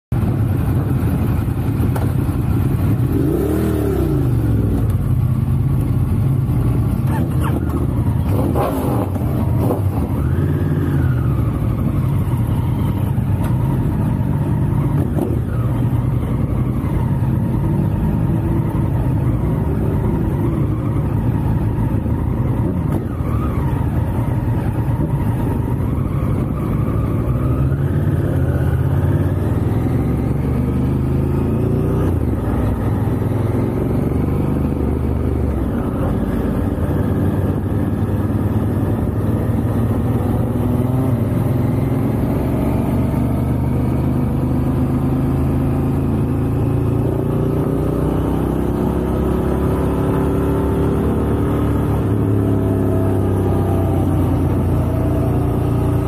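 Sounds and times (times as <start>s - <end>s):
motorcycle engines revving: 0.2s - 56.0s.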